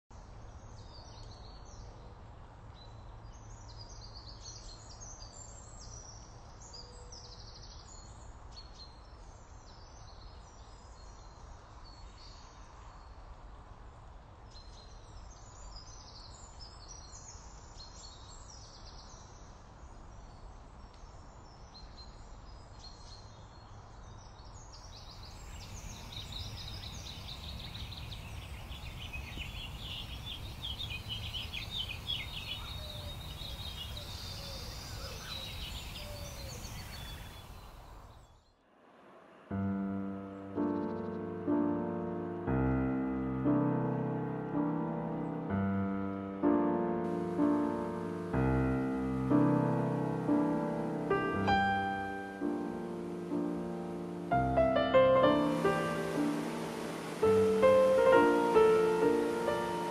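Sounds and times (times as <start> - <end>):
small birds chirping: 14.6 - 38.6, 47.1 - 59.9.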